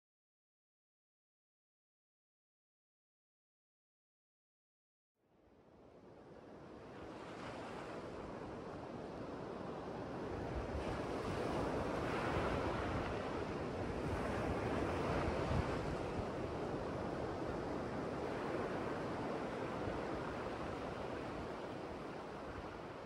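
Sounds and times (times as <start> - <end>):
ocean surf breaking on beach: 6.3 - 23.0.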